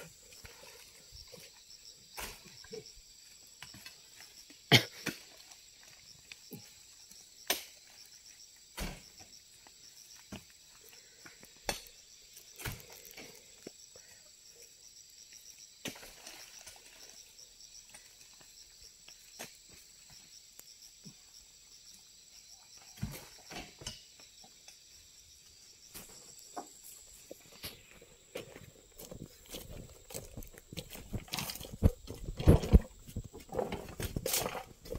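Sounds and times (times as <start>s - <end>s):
high insect drone: 0.0s - 34.9s.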